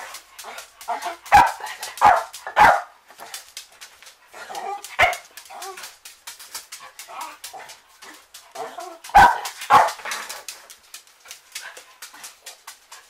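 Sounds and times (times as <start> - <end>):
dog barking: 1.3 - 2.9, 5.0 - 5.2, 9.1 - 10.0.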